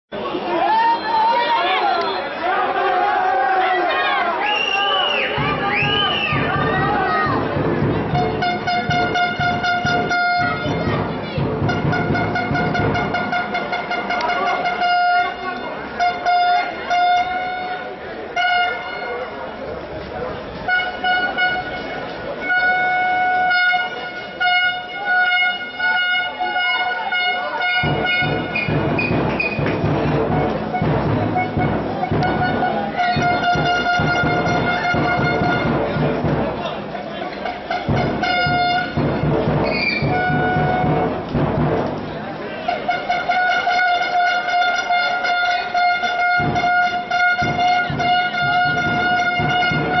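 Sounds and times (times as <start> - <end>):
horn blasts: 4.4 - 19.4, 20.6 - 36.5, 37.4 - 42.0, 42.6 - 50.0
low thumps: 5.3 - 14.5, 27.7 - 36.8, 37.6 - 42.3.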